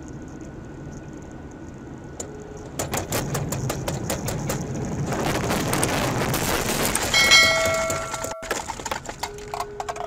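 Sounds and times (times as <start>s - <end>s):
car road noise on wet road: 0.1s - 9.5s
dense rush of noise: 3.0s - 8.8s.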